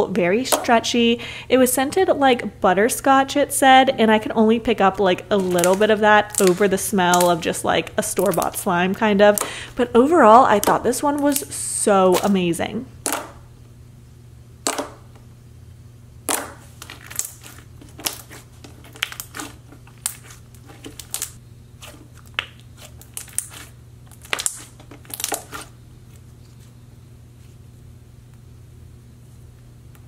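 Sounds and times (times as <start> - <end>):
slime squishing with wet pops: 5.5 - 7.3, 16.3 - 25.7.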